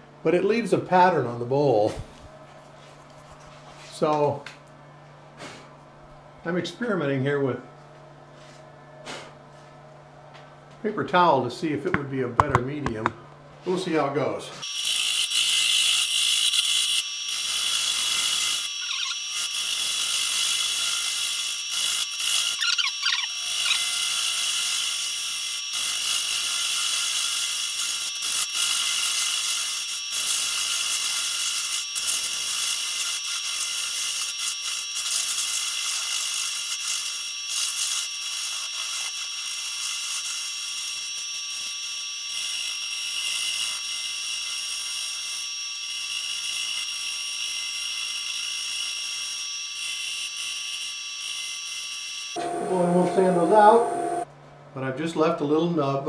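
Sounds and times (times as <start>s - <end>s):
lathe whine: 49.7s - 54.3s.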